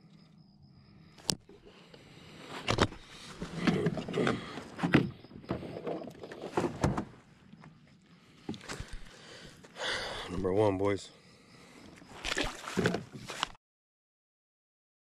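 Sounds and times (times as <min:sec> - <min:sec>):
knocks and thumps on plastic kayak: 0:12.4 - 0:13.4.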